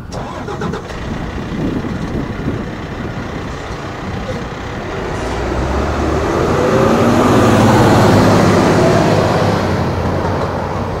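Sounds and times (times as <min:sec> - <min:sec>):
traffic passing close by: 0:00.0 - 0:11.0.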